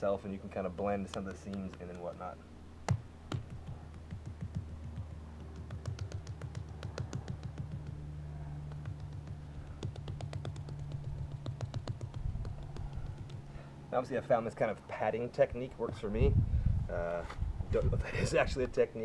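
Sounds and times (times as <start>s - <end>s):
steady low hum: 0.0s - 19.0s
hands slapping wet clay: 0.8s - 2.3s, 2.9s - 8.0s, 8.6s - 13.6s.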